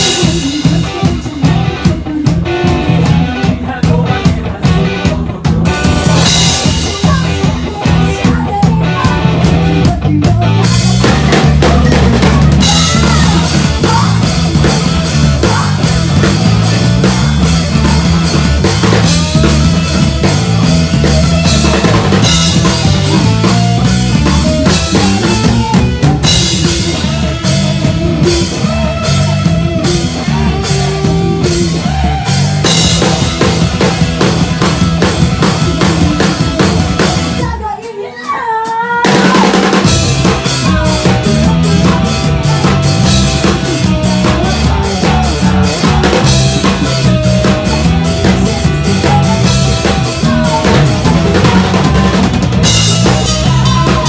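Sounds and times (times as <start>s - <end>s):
woman singing: 0.0s - 18.1s, 35.4s - 54.0s
bass guitar: 0.0s - 38.2s, 38.9s - 54.0s
electric guitars: 0.0s - 38.2s, 38.8s - 54.0s
drum kit: 0.0s - 54.0s.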